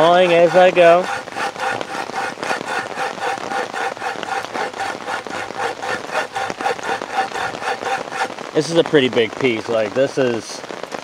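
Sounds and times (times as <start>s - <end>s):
handsaw sawing wood: 0.0s - 9.2s.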